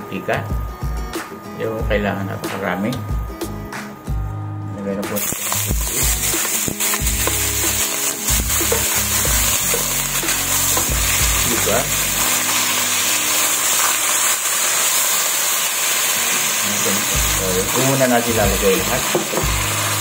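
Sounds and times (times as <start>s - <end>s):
meat sizzling in hot oil: 5.2s - 20.0s.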